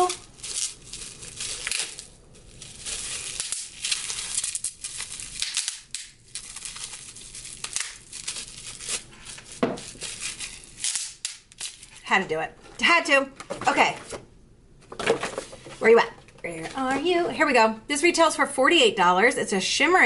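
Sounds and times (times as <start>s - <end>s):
bubble wrap crinkling: 0.0s - 12.1s
bubble wrap pop: 5.2s - 6.7s, 7.6s - 10.1s.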